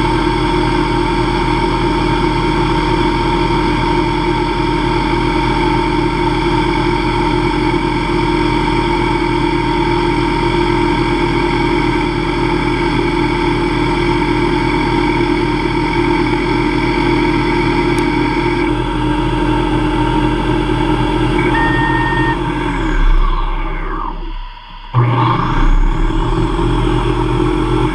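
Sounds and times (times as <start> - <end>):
lathe spindle whine: 20.4 - 27.9.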